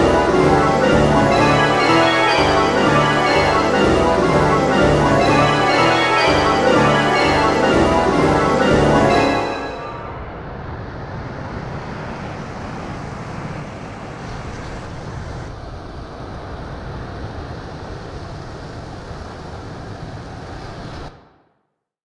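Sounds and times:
pitchless rushing noise: 7.5s - 15.6s.

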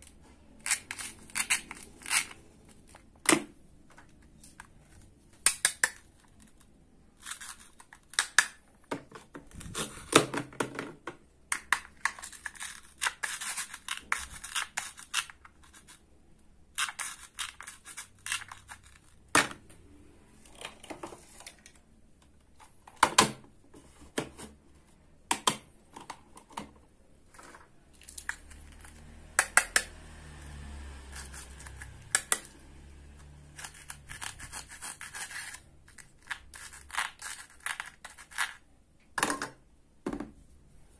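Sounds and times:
plastic pieces clicking and knocking: 5.3s - 16.0s.

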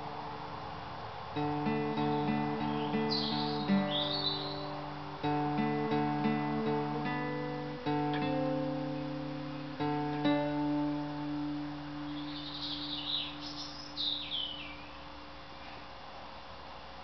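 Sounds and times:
acoustic guitar strummed: 1.4s - 15.4s
songbird warbling: 1.7s - 5.0s, 12.0s - 15.9s.

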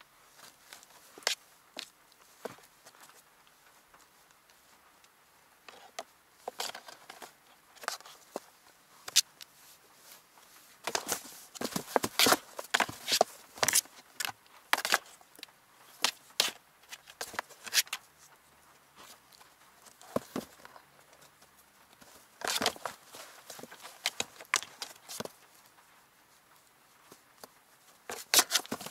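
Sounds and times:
kitten claws scratching cardboard: 28.1s - 28.9s.

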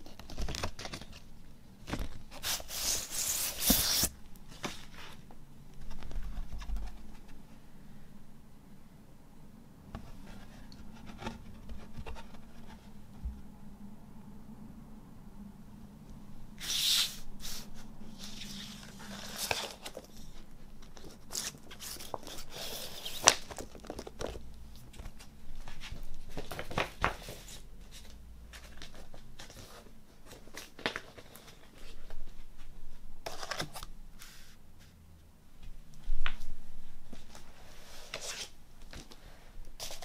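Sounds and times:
paper rustling and sliding: 1.9s - 7.4s, 16.6s - 32.3s, 37.2s - 39.2s, 39.8s - 40.0s.

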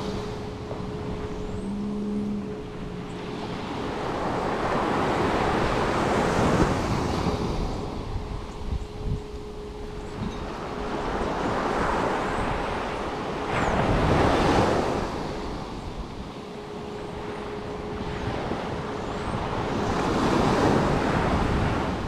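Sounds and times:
sea waves breaking on beach: 0.0s - 8.5s
wind buffeting microphone: 0.0s - 22.0s.

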